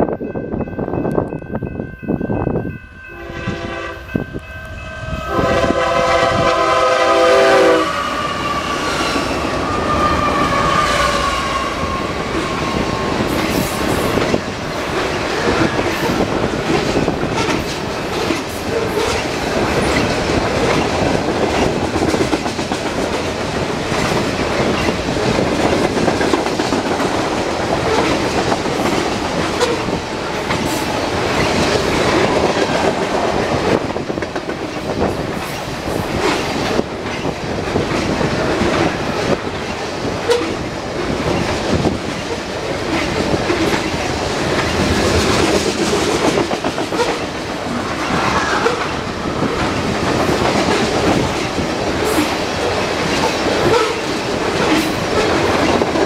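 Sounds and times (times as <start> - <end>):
train wheels rumbling on rail: 0.0 - 56.0
locomotive horn: 3.1 - 4.2, 4.9 - 12.0.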